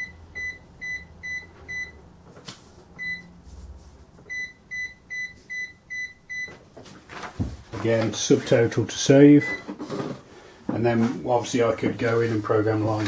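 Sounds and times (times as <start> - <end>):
cash register key beeps: 0.0 - 2.0, 4.3 - 6.5, 9.4 - 9.7.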